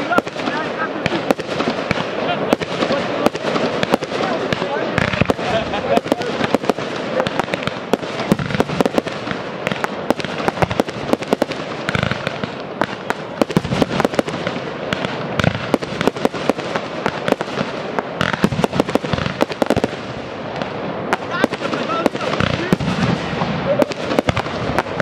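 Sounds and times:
firework bangs: 0.0s - 25.0s
steady rushing noise: 0.0s - 25.0s.

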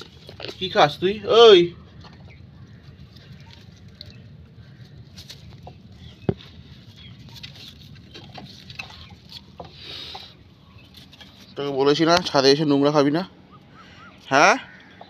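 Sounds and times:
puppy scuffling and chewing: 0.0s - 1.2s, 1.8s - 12.4s.

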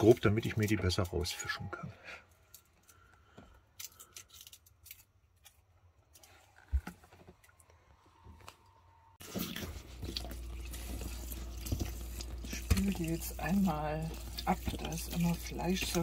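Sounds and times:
tap water running into sink: 9.3s - 16.0s.

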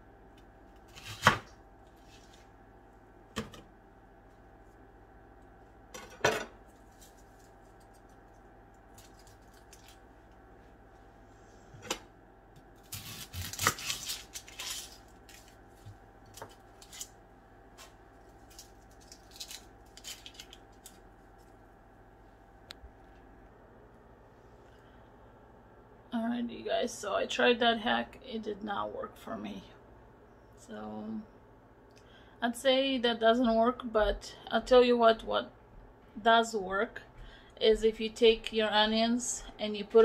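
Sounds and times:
onion skin peeling rustle: 6.6s - 10.4s, 12.8s - 21.6s.

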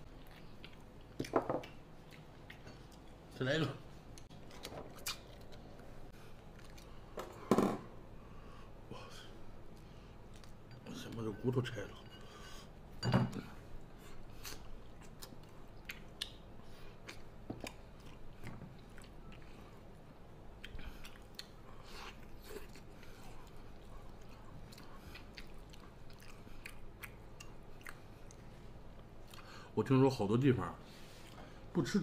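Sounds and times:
man chewing with wet smacks: 0.0s - 3.3s, 4.0s - 7.1s, 9.6s - 10.7s, 13.9s - 29.5s.

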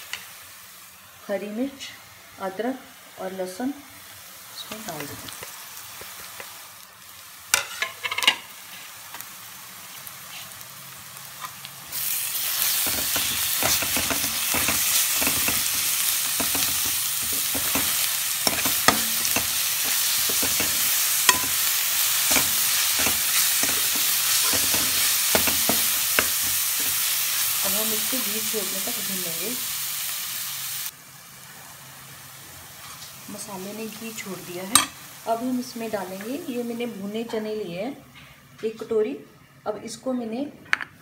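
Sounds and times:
onions sizzling in ghee: 0.0s - 37.8s
steel spoon knocking: 12.9s - 21.6s, 22.3s - 27.0s.

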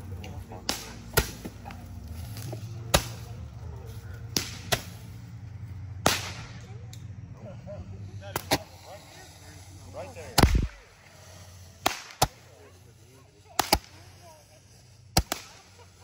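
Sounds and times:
steady low hum: 0.0s - 16.0s
firework bangs: 6.0s - 6.6s, 8.3s - 12.8s, 13.4s - 16.0s.

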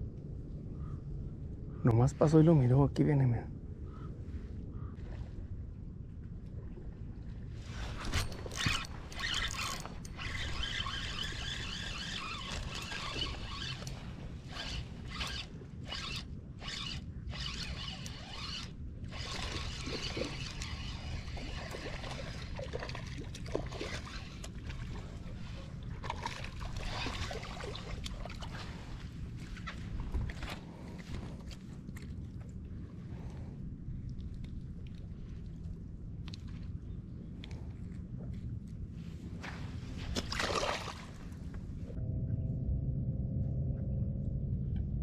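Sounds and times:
wind rumble on microphone: 0.0s - 45.0s
fishing reel gears whirring: 8.2s - 25.0s.

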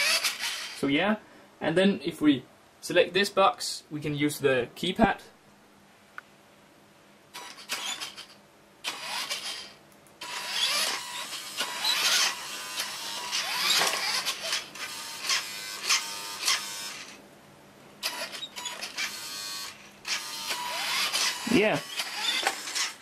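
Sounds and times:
toy car electric motor whirring: 0.0s - 0.8s, 7.4s - 17.2s, 18.0s - 23.0s.

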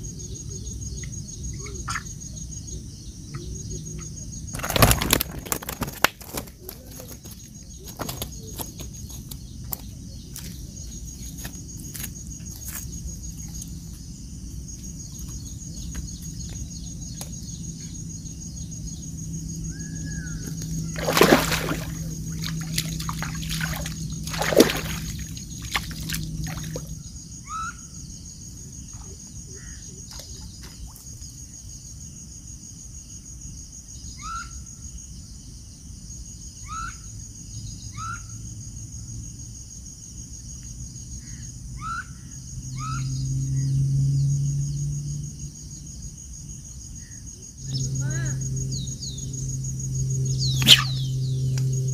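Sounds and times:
cricket trill: 0.0s - 51.9s
fish splashing in water: 4.5s - 6.5s, 20.8s - 27.0s.

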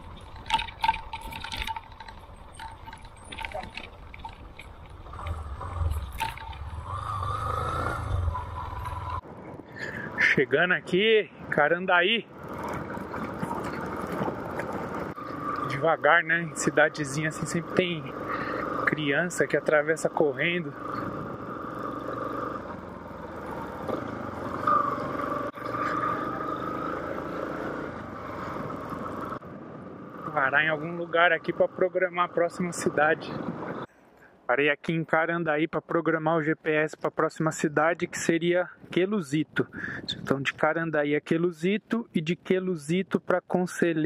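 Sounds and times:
motorcycle engine rumbling: 0.0s - 34.0s.

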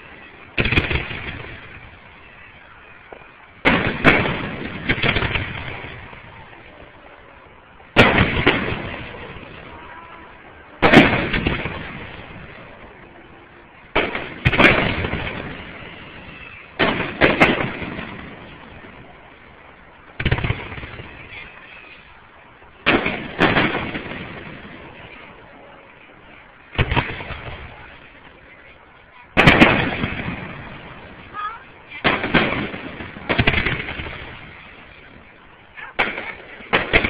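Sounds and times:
firework shells bursting: 0.0s - 6.6s, 7.9s - 9.8s, 13.9s - 25.3s, 29.3s - 37.0s
rumble after firework bangs: 0.0s - 37.0s.

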